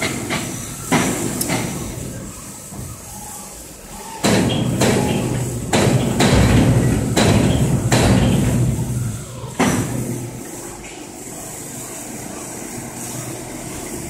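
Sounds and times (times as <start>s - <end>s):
heavy metallic knocks and clanks: 4.2s - 10.3s.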